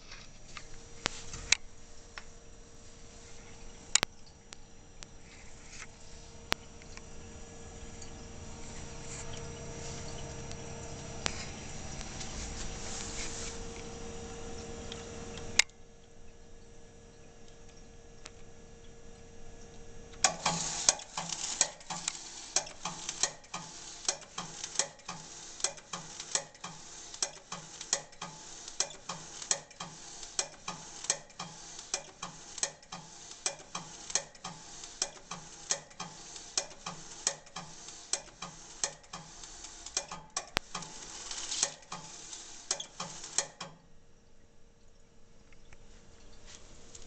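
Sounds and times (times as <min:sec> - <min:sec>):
tape drive clicks: 0:20.2 - 0:43.8.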